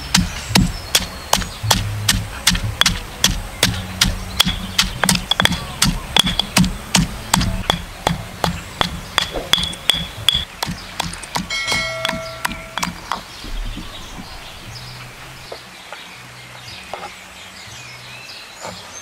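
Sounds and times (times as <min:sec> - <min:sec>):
stone pestle pounding in mortar: 0:00.0 - 0:14.2.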